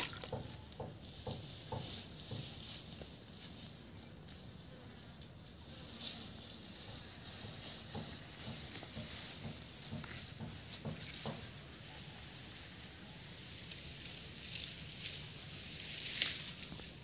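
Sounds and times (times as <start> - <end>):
footsteps on grass and dirt: 0.0 - 4.7, 5.4 - 11.9
insects hissing: 0.0 - 17.0.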